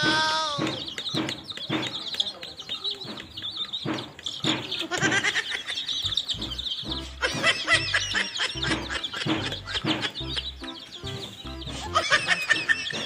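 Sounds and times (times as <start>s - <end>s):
baby chicks peeping: 0.0s - 13.0s
background music with low bass: 6.0s - 13.0s.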